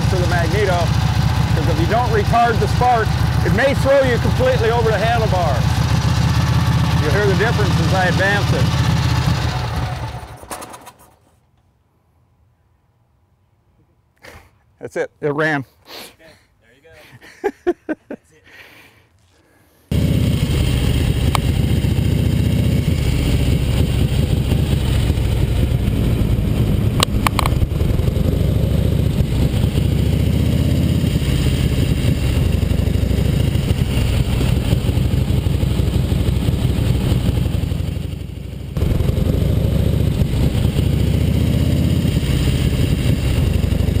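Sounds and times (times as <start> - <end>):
motorcycle engine running: 0.0 - 10.4, 19.9 - 44.0
sharp clicks: 27.0 - 27.8.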